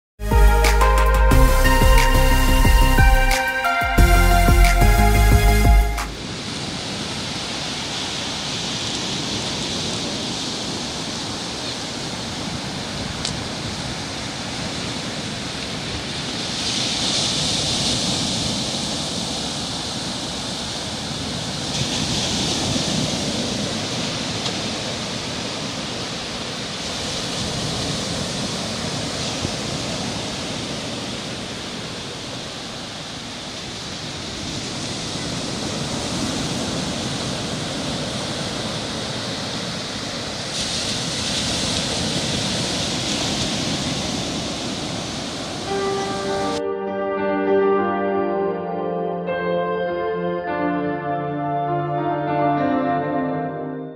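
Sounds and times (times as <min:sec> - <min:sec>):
surf breaking on rocks: 0:34.1 - 0:46.6.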